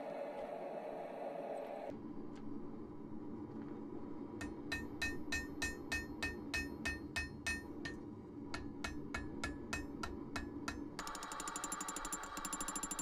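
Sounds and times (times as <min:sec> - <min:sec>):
hammer ringing on anvil: 0:04.4 - 0:08.0, 0:08.6 - 0:13.0.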